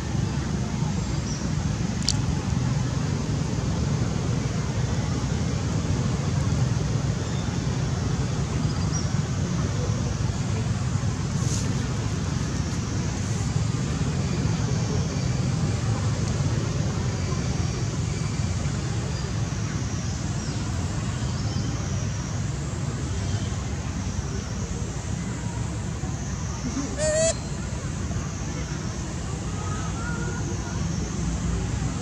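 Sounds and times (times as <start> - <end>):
faint high chirps: 26.6 - 27.7.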